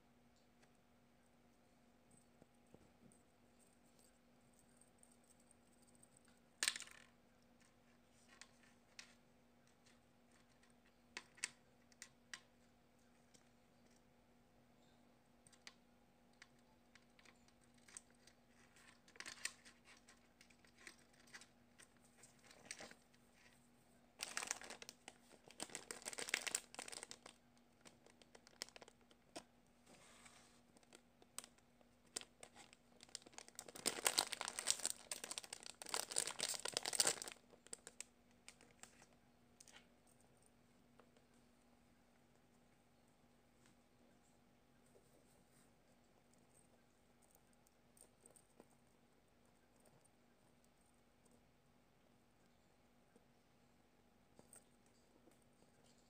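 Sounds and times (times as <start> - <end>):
plastic packaging crinkling: 24.2 - 29.4, 30.8 - 39.8.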